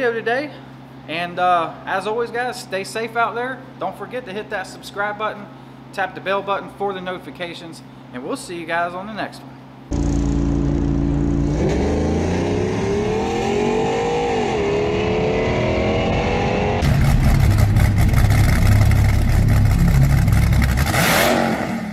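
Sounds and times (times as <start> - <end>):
rough low rumble: 9.9 - 12.4, 16.5 - 20.9
pickup engine revving: 9.9 - 21.9.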